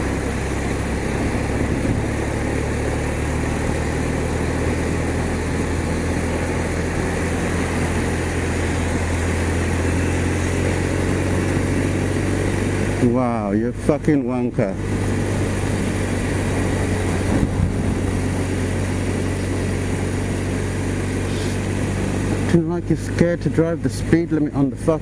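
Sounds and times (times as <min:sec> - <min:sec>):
wind rushing: 0:00.0 - 0:03.6, 0:14.8 - 0:19.0
motorcycle engine running: 0:00.0 - 0:25.0
tyres on wet road: 0:00.0 - 0:25.0.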